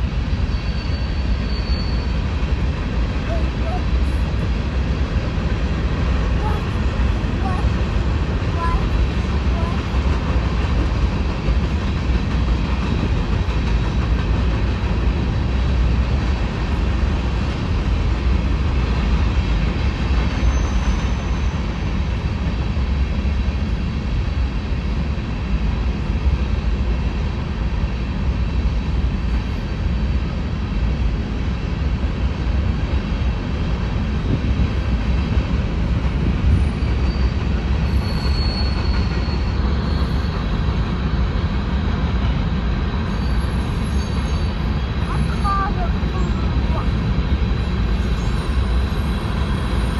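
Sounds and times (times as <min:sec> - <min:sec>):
freight train wheels rumbling: 0:00.0 - 0:49.9
faint high wheel squeal: 0:00.3 - 0:02.4, 0:20.3 - 0:21.8, 0:36.5 - 0:40.8, 0:43.0 - 0:46.4, 0:48.0 - 0:49.9.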